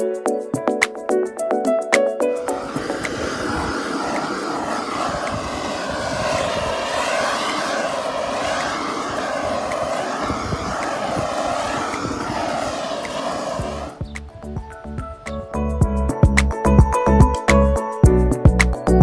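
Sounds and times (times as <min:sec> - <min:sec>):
blow torch hissing roar: 0:02.4 - 0:14.1.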